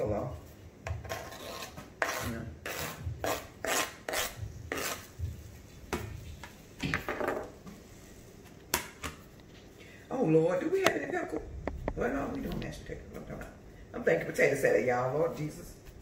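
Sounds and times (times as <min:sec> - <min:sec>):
knife scraping cutting board: 0:00.9 - 0:05.1
knife peeling potatoes: 0:00.9 - 0:05.2.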